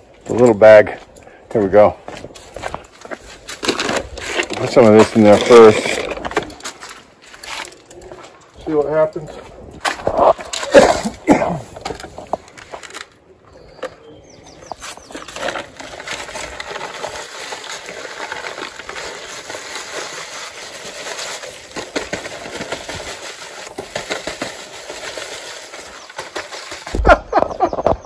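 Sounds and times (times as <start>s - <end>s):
paper sack crackling: 2.4s - 7.9s, 14.7s - 27.4s.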